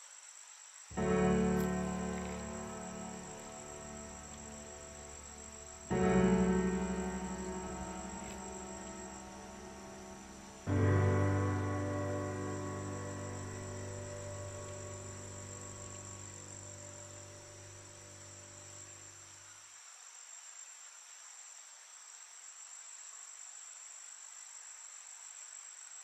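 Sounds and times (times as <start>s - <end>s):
crickets chirring: 0.0s - 26.0s
low ringing musical tone: 1.0s - 19.0s.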